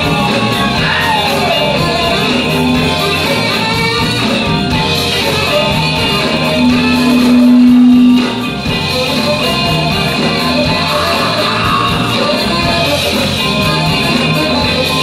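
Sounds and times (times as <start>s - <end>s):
soul band instrumental groove: 0.0s - 15.0s
loud held note: 6.4s - 8.6s.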